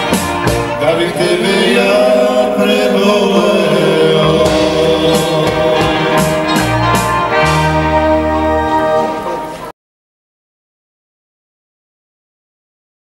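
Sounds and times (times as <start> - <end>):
bass guitar low notes: 0.0 - 9.3
live band playing pop song: 0.0 - 9.7
person singing: 0.1 - 7.6.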